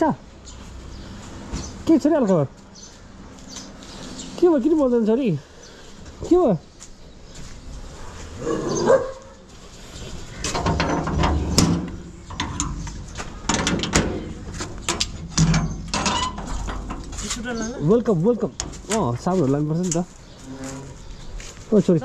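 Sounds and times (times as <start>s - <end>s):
dog barking: 8.6s - 9.5s.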